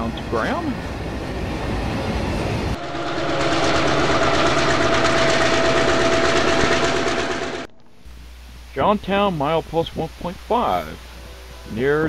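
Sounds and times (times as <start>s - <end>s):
model train whine: 0.6s - 7.7s.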